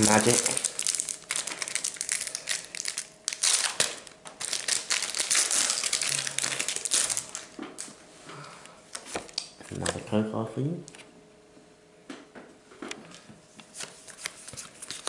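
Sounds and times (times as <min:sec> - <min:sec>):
foil wrapper crinkling: 0:00.0 - 0:07.9, 0:14.1 - 0:15.0.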